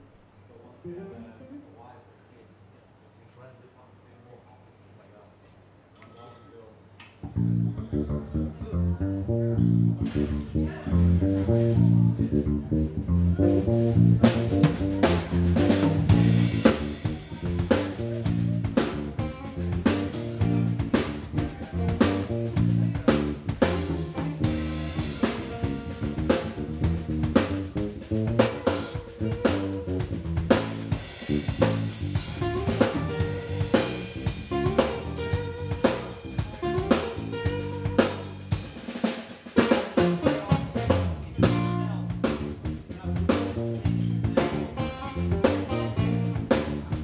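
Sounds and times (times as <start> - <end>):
bass guitar: 7.2 - 47.0
electric guitar riff: 7.3 - 38.8, 43.5 - 47.0
drum kit cymbal and drum hits: 13.6 - 47.0.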